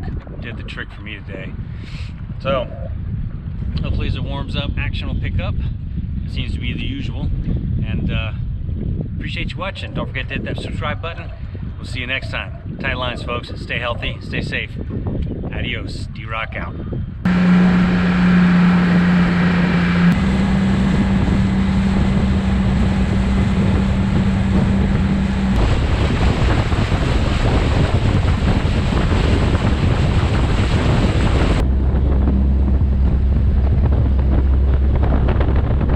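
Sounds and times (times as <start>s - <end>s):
wind buffeting microphone: 0.0s - 35.9s
motorboat engine hum: 1.6s - 3.8s, 17.2s - 35.9s
rushing water: 17.3s - 35.9s.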